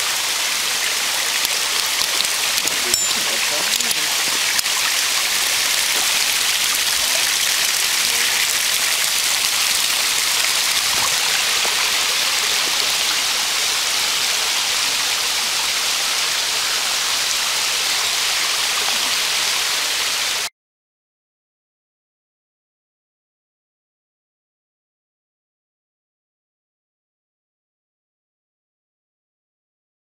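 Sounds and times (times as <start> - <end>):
creek water running over rocks: 0.0 - 20.5.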